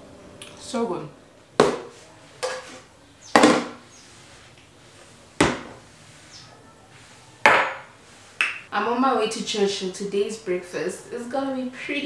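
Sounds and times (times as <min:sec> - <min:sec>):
containers knocking on countertop: 0:01.6 - 0:02.7.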